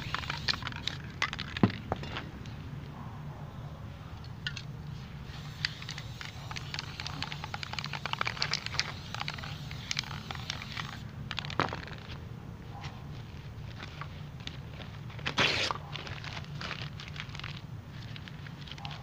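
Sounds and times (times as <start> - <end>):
spray paint can hissing: 0.0 - 0.7, 5.3 - 11.0, 15.4 - 15.8.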